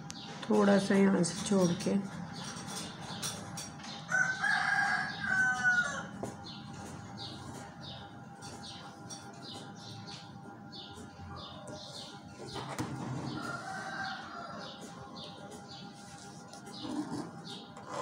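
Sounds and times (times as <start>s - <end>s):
small birds chirping: 0.0s - 18.0s
rooster crowing: 4.1s - 6.3s, 13.2s - 15.3s.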